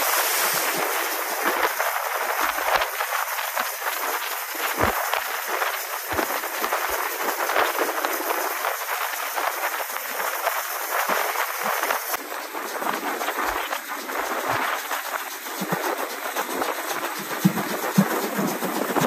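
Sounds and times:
train wheels on track: 0:00.0 - 0:19.0.

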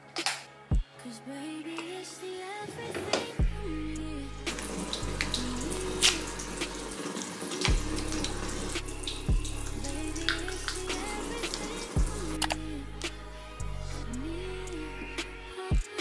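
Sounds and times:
background music with deep bass: 0:00.0 - 0:02.4, 0:03.3 - 0:16.0
tap water running into sink: 0:04.5 - 0:12.2.

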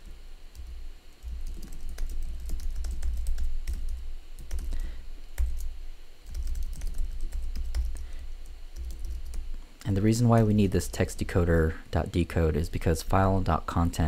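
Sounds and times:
keyboard typing clicks: 0:01.4 - 0:08.0.

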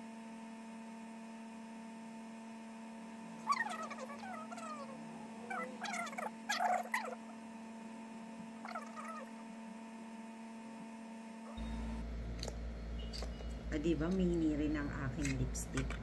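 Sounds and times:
steady electrical hum: 0:00.0 - 0:16.0
pitched animal calls: 0:03.4 - 0:07.4, 0:08.5 - 0:09.4.

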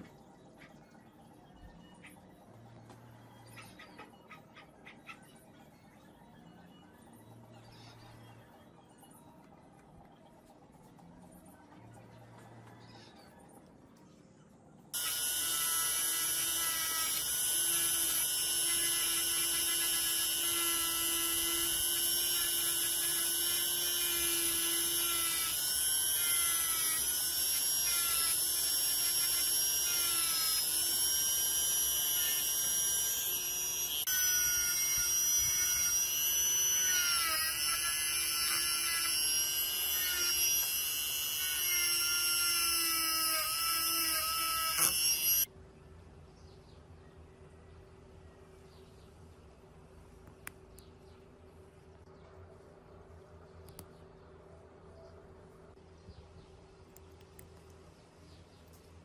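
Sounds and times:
rotary tool high-pitched whine: 0:15.0 - 0:45.5.

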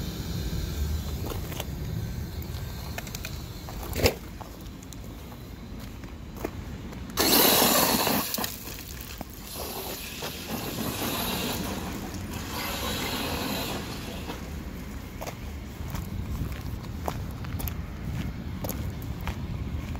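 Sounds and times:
rc truck running: 0:00.0 - 0:05.2, 0:07.1 - 0:15.6
tyres scrabbling and spraying gravel: 0:07.2 - 0:15.9.

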